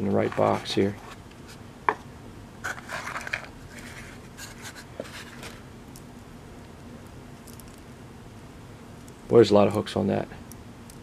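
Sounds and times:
cardboard rustling and scraping: 0.1s - 1.6s, 2.6s - 5.6s.

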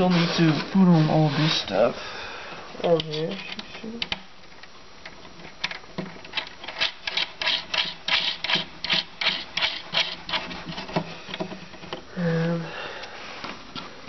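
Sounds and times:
cable scratching against wood: 0.0s - 1.7s, 6.6s - 11.1s.

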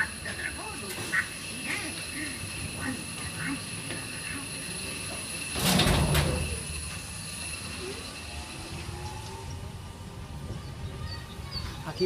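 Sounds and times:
ride car clatter: 0.0s - 9.5s
wheels rumbling on rail: 0.0s - 12.0s.

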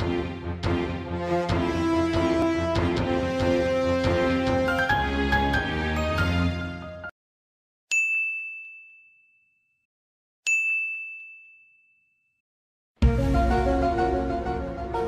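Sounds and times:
bell dings: 7.9s - 12.4s.

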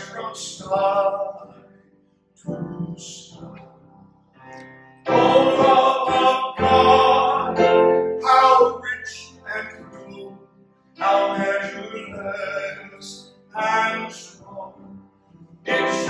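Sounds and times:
voices singing: 0.0s - 1.6s, 5.1s - 10.2s, 11.0s - 14.8s, 15.7s - 16.0s.

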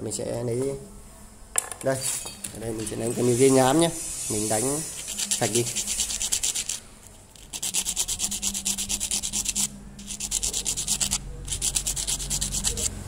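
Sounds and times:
sandpaper rasping on metal: 2.8s - 6.8s, 7.4s - 13.0s.

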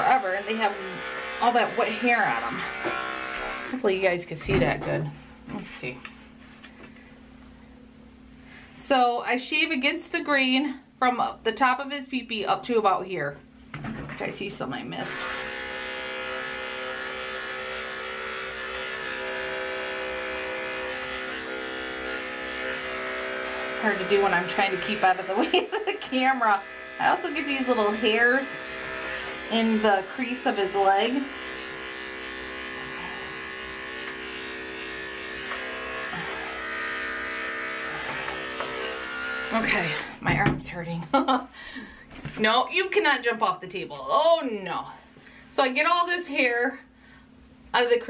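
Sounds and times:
electric dog clipper buzzing: 0.0s - 3.9s, 15.0s - 40.2s.

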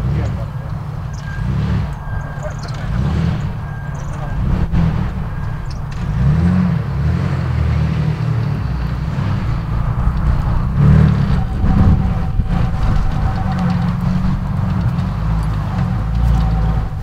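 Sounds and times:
off-road vehicle engine revving: 0.0s - 17.0s.

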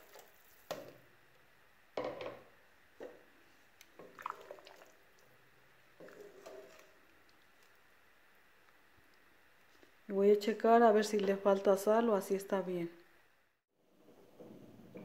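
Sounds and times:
liquid sloshing in a pot: 3.8s - 7.9s.

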